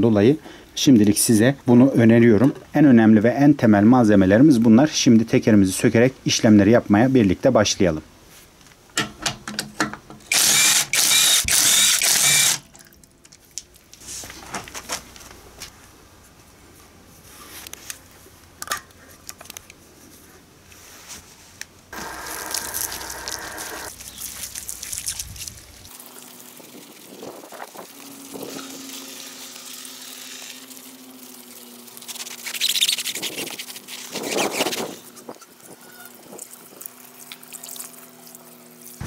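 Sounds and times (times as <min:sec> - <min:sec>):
hose water splashing: 0:22.0 - 0:39.0.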